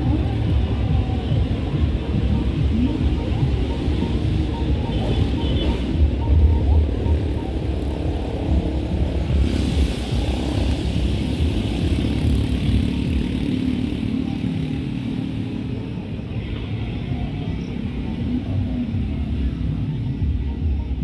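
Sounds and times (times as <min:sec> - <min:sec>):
vehicle engine running: 0:00.0 - 0:16.1.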